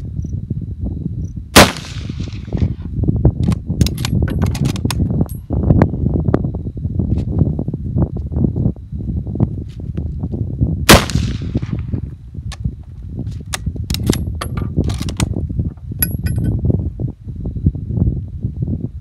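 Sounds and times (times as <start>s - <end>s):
rifle shot: 1.6s - 2.7s, 10.9s - 11.8s
rifle bolt clicking and clacking: 3.4s - 5.0s, 13.5s - 15.3s
ringing clink: 16.0s - 16.6s.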